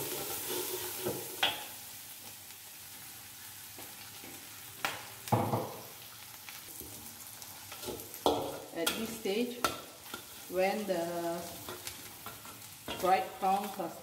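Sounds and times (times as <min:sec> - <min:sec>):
metal spatula scraping a wok: 0:00.0 - 0:01.7, 0:07.7 - 0:10.8
food sizzling in butter: 0:00.0 - 0:14.0.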